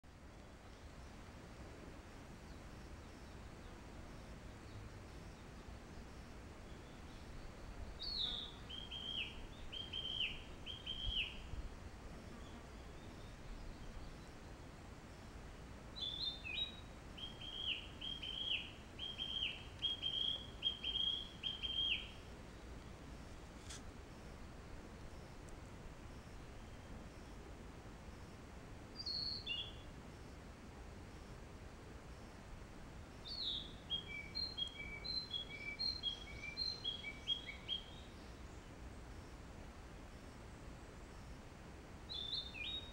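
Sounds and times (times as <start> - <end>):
faint woodland hiss: 0.1 - 42.9
songbird singing whistled notes: 6.6 - 11.5, 12.3 - 14.5, 16.0 - 22.9, 29.0 - 29.8, 33.2 - 38.7, 42.1 - 42.9
songbird singing high notes: 16.0 - 22.2.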